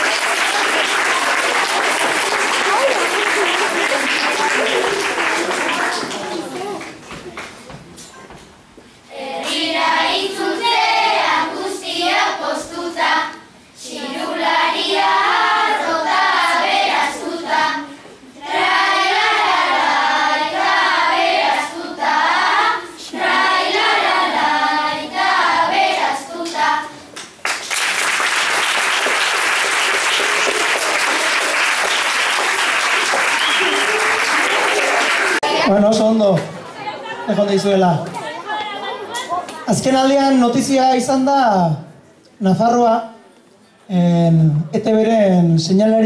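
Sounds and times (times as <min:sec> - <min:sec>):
audience applause: 0:00.0 - 0:07.7, 0:27.4 - 0:35.7
children singing together: 0:09.1 - 0:27.1.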